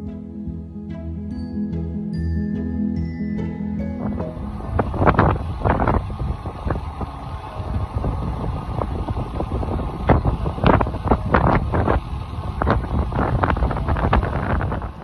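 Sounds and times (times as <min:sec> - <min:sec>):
wind rushing over microphone: 0:04.0 - 0:15.0.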